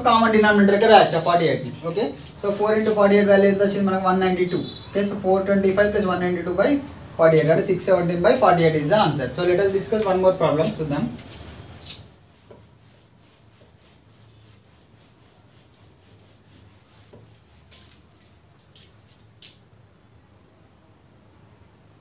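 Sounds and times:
duster rubbing on whiteboard: 0:00.0 - 0:04.2, 0:06.7 - 0:18.0.

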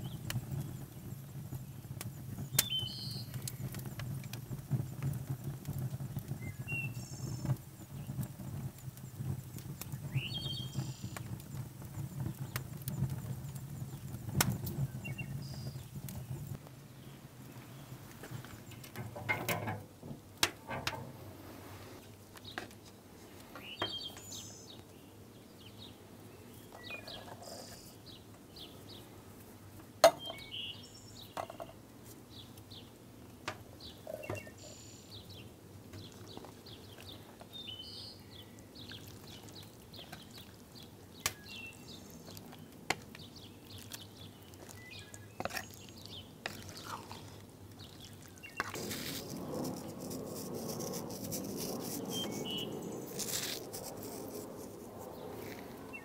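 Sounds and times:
faint bird chirps: 0:02.5 - 0:03.8, 0:33.9 - 0:35.5, 0:51.8 - 0:53.2.

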